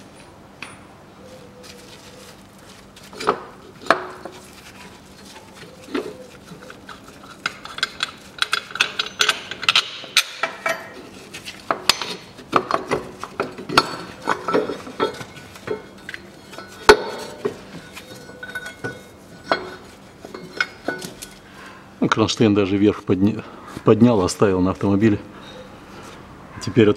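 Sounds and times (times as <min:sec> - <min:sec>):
metal engine mount clinking: 0:07.3 - 0:11.0, 0:11.8 - 0:21.4.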